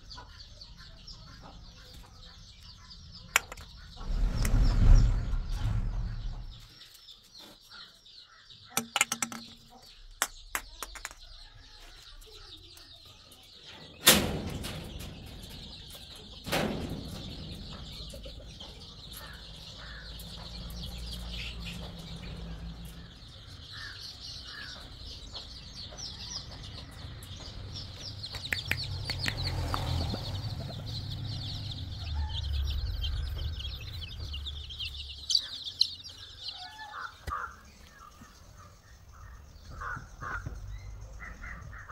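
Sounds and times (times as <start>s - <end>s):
chicks peeping: 0.0s - 41.9s
low rumble: 3.7s - 6.8s, 28.9s - 35.2s
sharp knocks: 8.8s - 11.2s.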